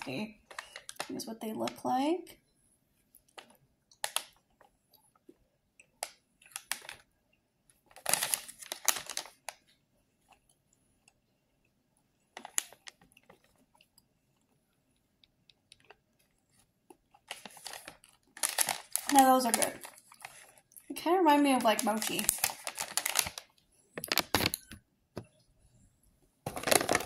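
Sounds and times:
plastic candy pouch crinkling: 0.4s - 1.1s, 6.0s - 7.1s, 7.9s - 9.6s, 12.4s - 13.6s, 17.1s - 24.7s, 26.5s - 27.0s.

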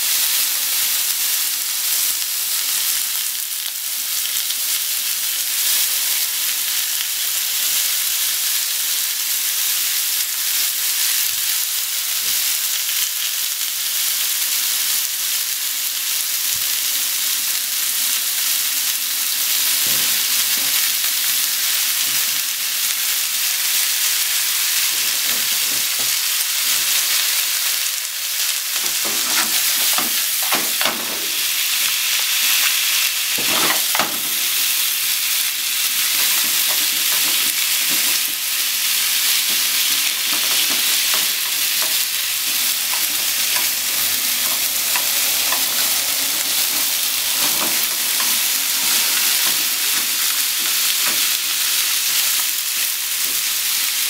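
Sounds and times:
onion and meat sizzling: 0.0s - 54.0s
chopsticks scraping and clacking: 28.7s - 31.1s, 33.4s - 34.6s, 35.8s - 38.6s, 39.2s - 51.3s.

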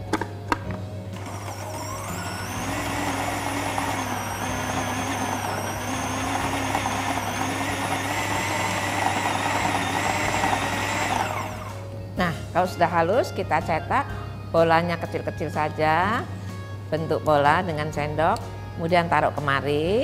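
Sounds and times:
food processor motor whining: 1.2s - 11.9s.

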